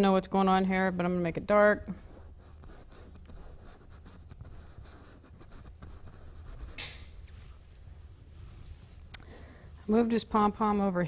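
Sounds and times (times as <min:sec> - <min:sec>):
brush scratching on canvas: 0:01.9 - 0:09.0.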